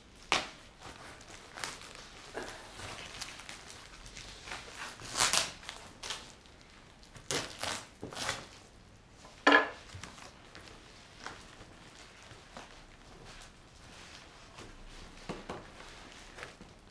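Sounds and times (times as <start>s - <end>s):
package rustling and crinkling: 0.1s - 8.7s.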